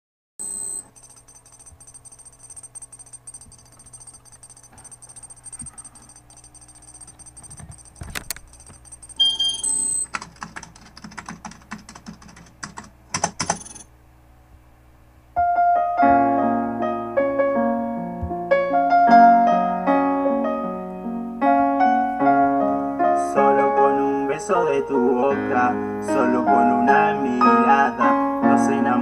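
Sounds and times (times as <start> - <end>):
rapid clatter of clicks: 0.8 - 13.8.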